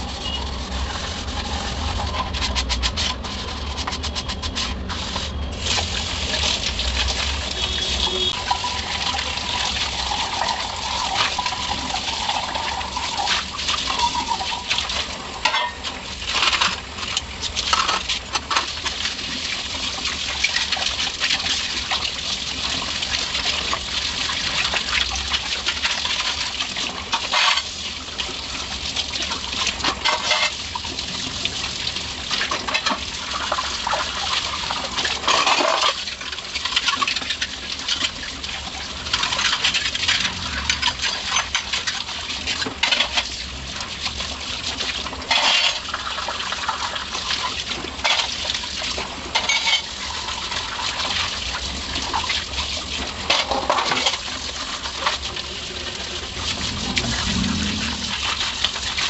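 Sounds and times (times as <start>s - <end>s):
tap water running into sink: 3.8s - 59.0s
metal utensils clinking: 15.4s - 15.8s, 29.9s - 30.6s, 45.3s - 45.9s, 49.3s - 50.0s.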